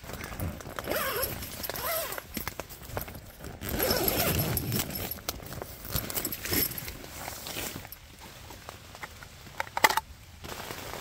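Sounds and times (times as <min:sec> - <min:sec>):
tent fabric rustling: 0:00.0 - 0:09.0, 0:10.4 - 0:11.0.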